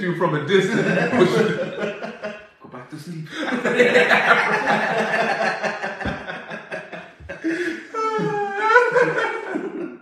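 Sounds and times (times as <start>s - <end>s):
men laughing: 0.5s - 2.5s, 3.3s - 10.0s
high-pitched laugh: 0.7s - 2.3s, 3.4s - 10.0s.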